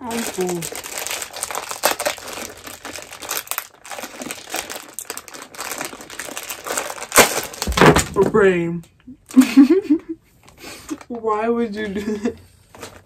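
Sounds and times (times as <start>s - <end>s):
plastic packaging crinkling: 0.0s - 8.5s, 12.6s - 13.0s.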